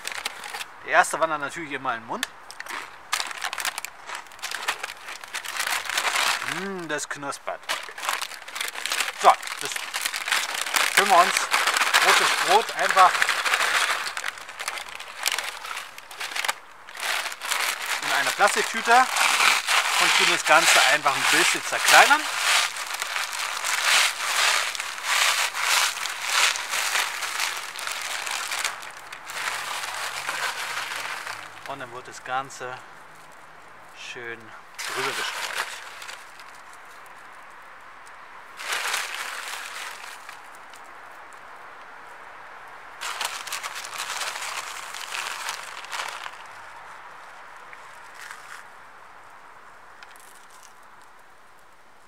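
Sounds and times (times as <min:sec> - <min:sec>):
biscuits crushed by hand: 0:00.0 - 0:00.7, 0:02.2 - 0:32.1, 0:34.8 - 0:36.8, 0:38.6 - 0:40.8, 0:43.0 - 0:46.8
plastic bag crinkling: 0:00.0 - 0:00.7, 0:02.5 - 0:32.2, 0:34.8 - 0:36.9, 0:38.6 - 0:40.8, 0:43.0 - 0:46.9.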